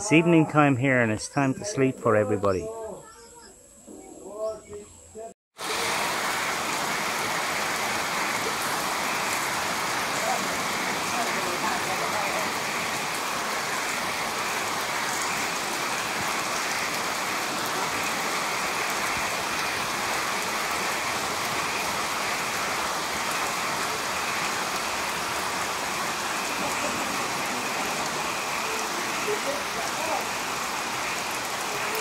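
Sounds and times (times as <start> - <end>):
rain falling on foliage: 5.6 - 32.0.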